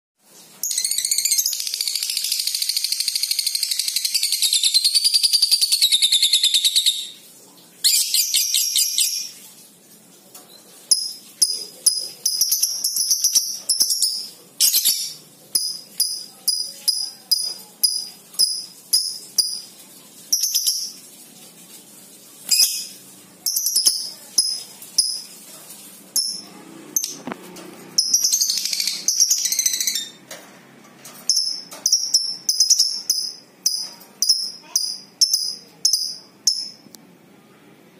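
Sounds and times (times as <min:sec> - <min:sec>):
lovebird chattering: 0:28.0 - 0:30.2.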